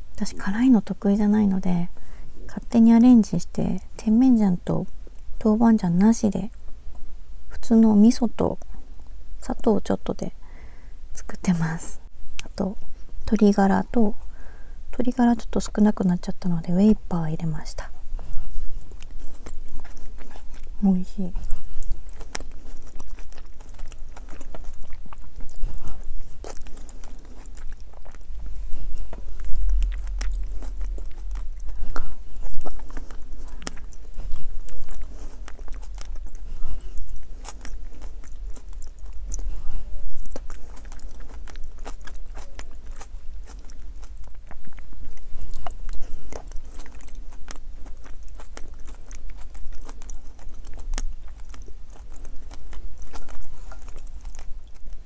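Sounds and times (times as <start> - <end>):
person chewing food: 17.4 - 55.0.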